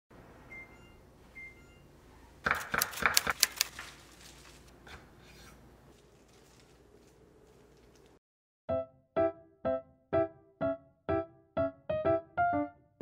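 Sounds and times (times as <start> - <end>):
oven electronic beeps: 0.4 - 2.0
sharp clicks and clatters: 2.5 - 3.8
soft rustling: 3.7 - 4.8, 5.9 - 8.2.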